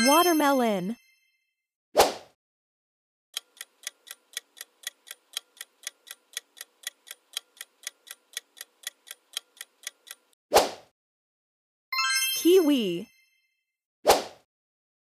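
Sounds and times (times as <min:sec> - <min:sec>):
clock ticking: 0:03.4 - 0:10.4.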